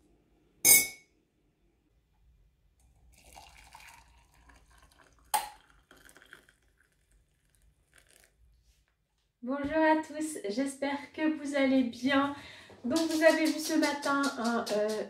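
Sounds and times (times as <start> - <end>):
sharp clink: 0.6 - 1.1
water pouring into a mug: 2.9 - 8.4.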